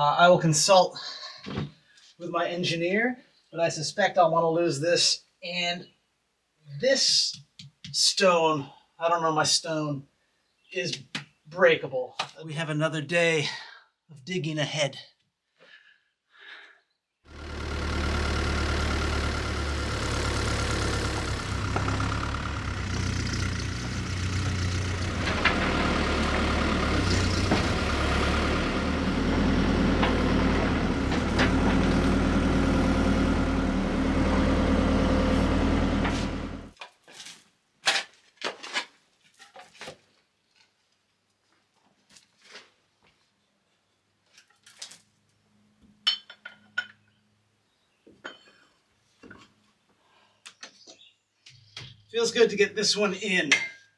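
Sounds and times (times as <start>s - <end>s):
excavator diesel engine running: 17.3s - 36.8s.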